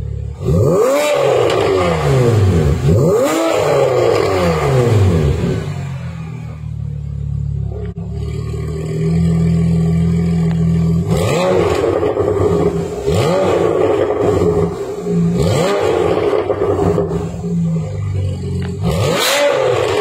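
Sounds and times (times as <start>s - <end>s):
car engine idling and revving: 0.0s - 20.0s.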